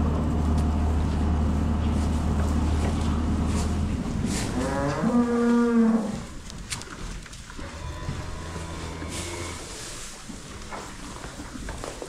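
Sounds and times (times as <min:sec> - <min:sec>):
steady low hum: 0:00.0 - 0:11.8
cow mooing: 0:04.5 - 0:06.4, 0:07.6 - 0:09.7.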